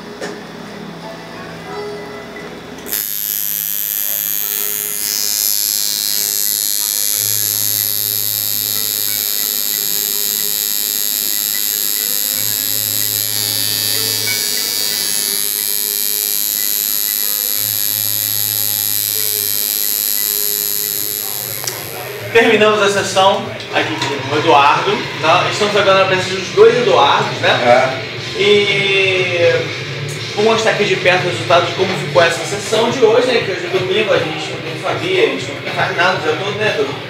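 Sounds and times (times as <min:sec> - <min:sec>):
tattoo machine buzzing: 0:02.9 - 0:22.4.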